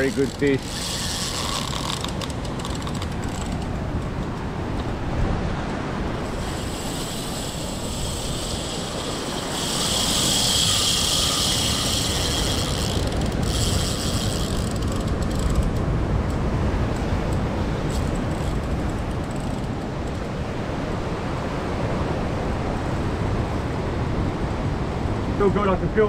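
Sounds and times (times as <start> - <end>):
fishing reel drag whirring: 0.0 - 4.4, 6.2 - 16.4, 17.3 - 20.4.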